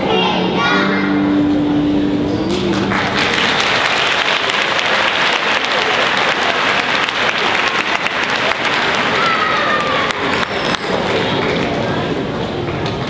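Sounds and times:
audience applauding: 2.4 - 12.3.

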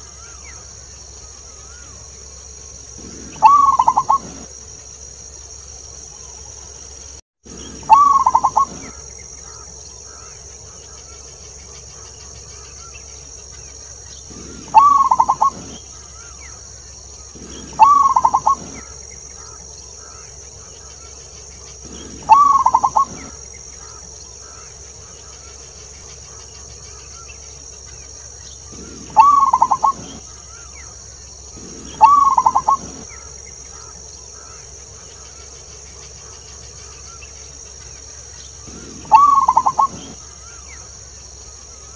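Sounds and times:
steady high buzz: 0.0 - 41.9
dove cooing: 3.0 - 4.5, 7.5 - 10.3, 14.3 - 16.4, 17.2 - 20.3, 21.8 - 24.7, 28.7 - 30.7, 31.5 - 34.5, 38.6 - 40.6.

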